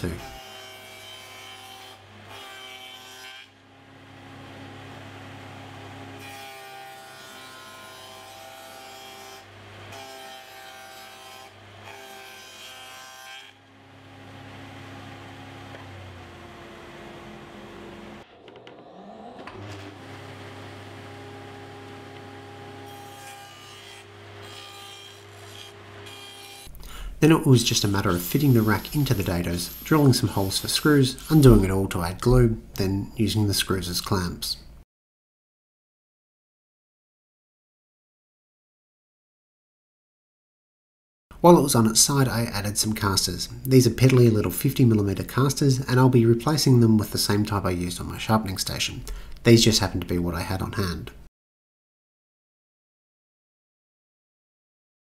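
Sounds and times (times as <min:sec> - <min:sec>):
table saw cutting plywood: 0:00.0 - 0:26.7, 0:27.5 - 0:32.4.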